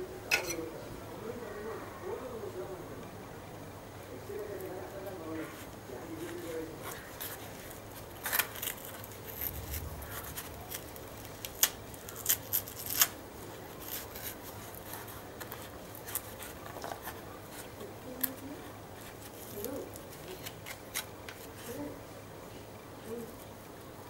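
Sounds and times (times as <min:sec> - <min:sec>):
knife scraping fibrous fruit: 0:05.4 - 0:22.0.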